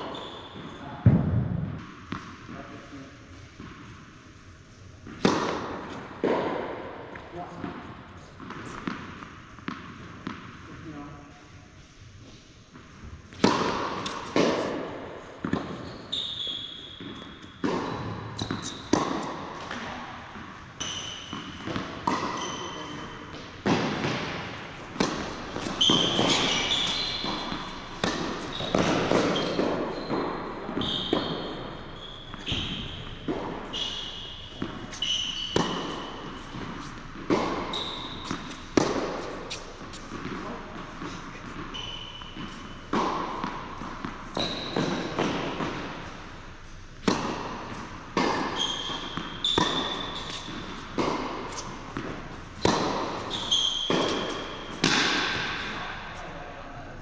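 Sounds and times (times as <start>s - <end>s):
sneakers squeaking on court: 0.0s - 1.1s, 13.4s - 19.9s, 20.8s - 55.9s
tennis balls bouncing on court: 0.0s - 2.8s, 3.4s - 4.3s, 5.0s - 10.7s, 12.3s - 56.1s
tennis balls hit by rackets: 0.0s - 10.7s, 12.3s - 56.2s.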